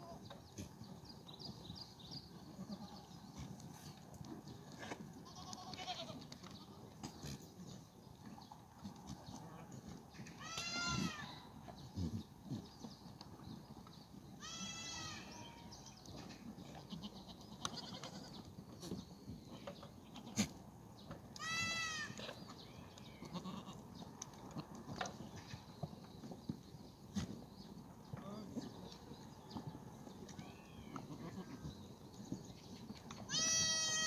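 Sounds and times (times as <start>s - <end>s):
goats bleating: 5.2s - 6.7s, 10.4s - 11.4s, 14.4s - 15.7s, 16.8s - 18.4s, 21.4s - 22.3s, 23.2s - 23.8s, 30.5s - 31.6s, 33.3s - 34.0s.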